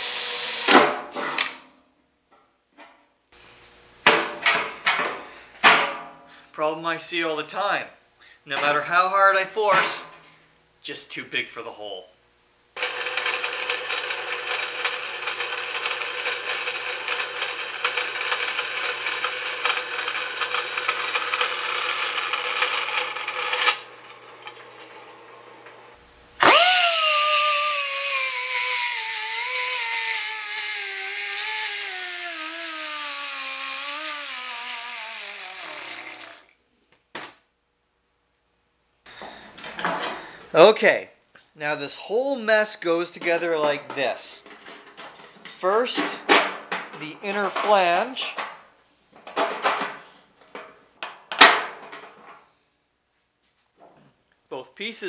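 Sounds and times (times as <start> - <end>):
bandsaw cutting metal: 0.0 - 1.0, 12.8 - 25.6, 26.4 - 36.5
machine whine winding down: 12.8 - 25.3, 26.4 - 36.5.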